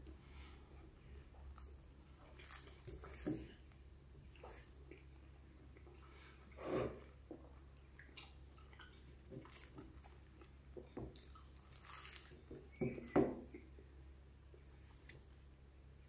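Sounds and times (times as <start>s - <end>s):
pastry crunching: 1.5s - 3.6s, 11.1s - 12.7s.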